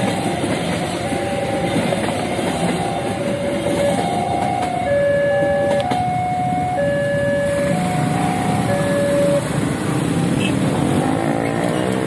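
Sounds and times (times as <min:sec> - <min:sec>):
level crossing alarm: 0:00.0 - 0:09.6
low rumble of train: 0:00.0 - 0:12.0
motorcycles idling: 0:00.0 - 0:12.0.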